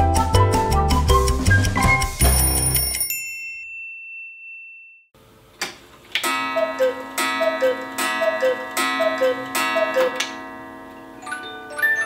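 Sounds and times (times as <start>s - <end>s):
clock strike: 6.2s - 11.2s
two-note cuckoo call: 6.3s - 10.4s
steady ringing: 6.3s - 11.7s.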